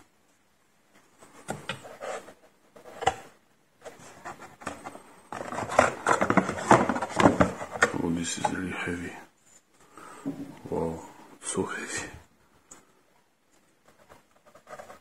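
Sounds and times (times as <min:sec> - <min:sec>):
rustling and rubbing: 0:01.0 - 0:08.8, 0:13.4 - 0:15.0.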